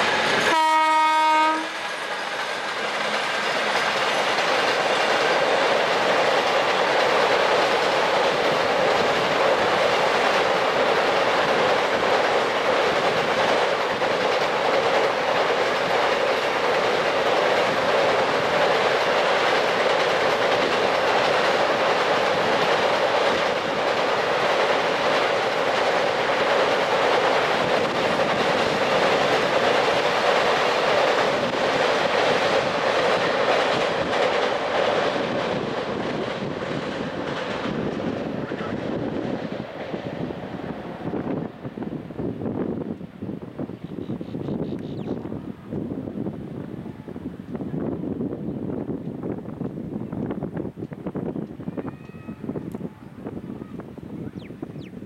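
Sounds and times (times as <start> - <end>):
freight train wheels clacking on rails: 0.0 - 42.4
locomotive horn: 0.4 - 1.9.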